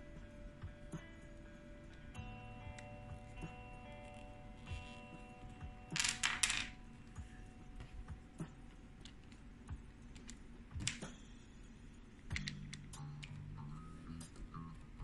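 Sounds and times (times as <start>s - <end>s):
wooden puzzle pieces clacking: 6.0s - 6.8s.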